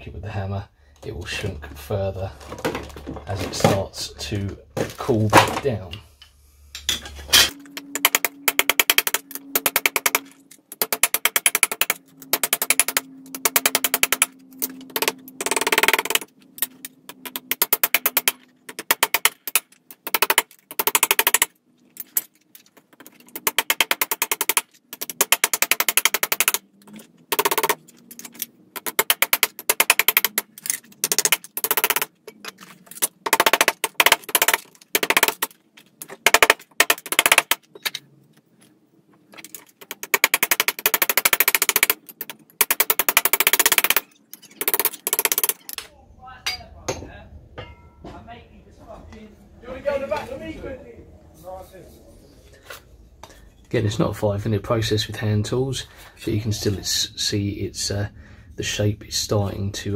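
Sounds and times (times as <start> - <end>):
hammer striking sheet steel: 47.6 - 48.2.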